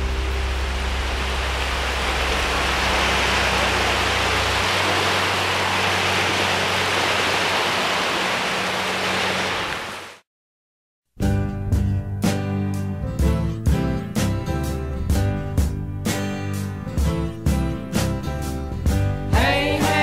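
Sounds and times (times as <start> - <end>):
surf washing up a beach: 0.0 - 10.2.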